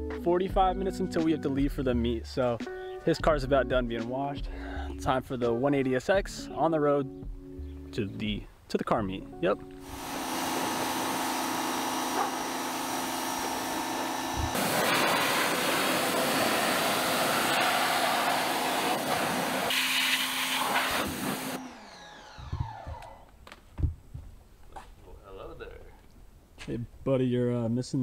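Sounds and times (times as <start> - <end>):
pressure washer motor humming: 9.8 - 23.3
water jet hissing on tyre: 9.9 - 21.6.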